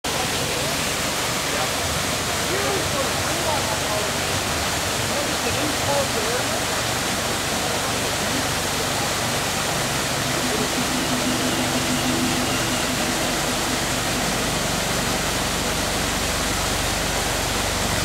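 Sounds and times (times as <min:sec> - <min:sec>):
waterfall rushing into pool: 0:00.0 - 0:18.0
faint low humming tone: 0:09.8 - 0:18.0.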